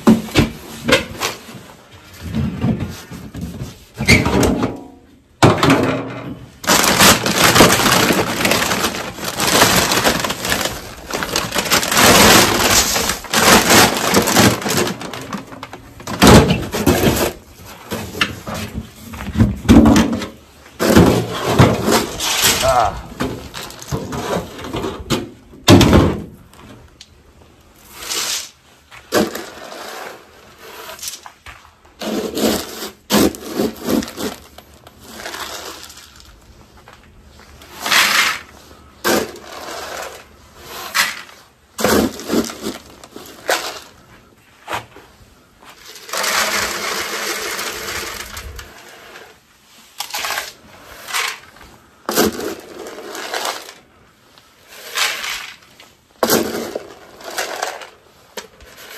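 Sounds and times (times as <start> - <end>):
feed pellets rattling in metal tub: 6.7 - 15.5, 45.8 - 48.8, 52.1 - 53.8, 54.8 - 58.0.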